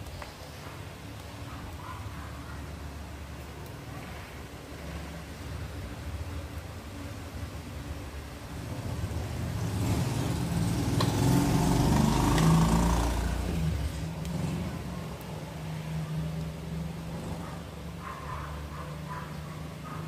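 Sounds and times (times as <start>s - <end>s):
vehicle passing by: 7.9s - 20.0s.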